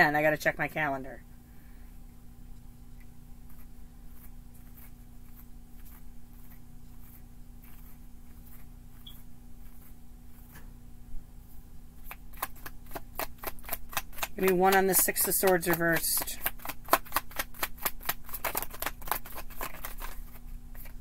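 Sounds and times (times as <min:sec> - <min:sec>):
low electrical hum: 0:00.0 - 0:21.0
cards shuffling: 0:12.0 - 0:21.0.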